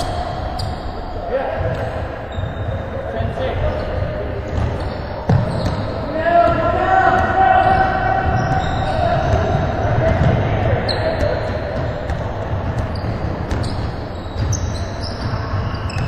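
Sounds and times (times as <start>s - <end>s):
sneakers squeaking on gym floor: 0.0s - 1.1s, 1.7s - 6.6s, 7.5s - 16.0s
players' voices: 0.0s - 16.0s
basketballs bouncing: 3.6s - 16.0s.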